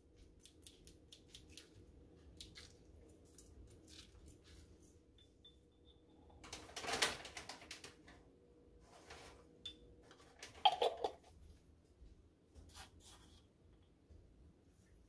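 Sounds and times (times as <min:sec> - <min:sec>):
rustling scrape: 0:08.8 - 0:09.5.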